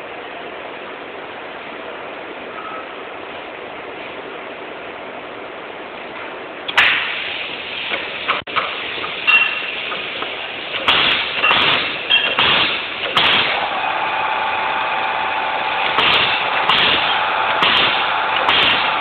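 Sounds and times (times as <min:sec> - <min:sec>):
steady hum: 0:00.0 - 0:19.0
machine running: 0:06.8 - 0:19.0
sharp mechanical clacks: 0:09.4 - 0:13.8, 0:15.8 - 0:19.0.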